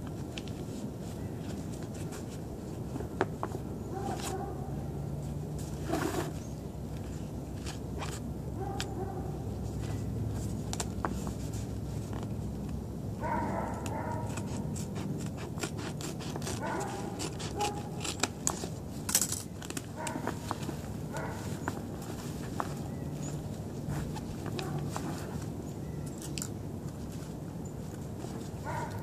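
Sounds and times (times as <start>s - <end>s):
clicks and scrapes: 5.6s - 6.4s, 13.8s - 22.8s.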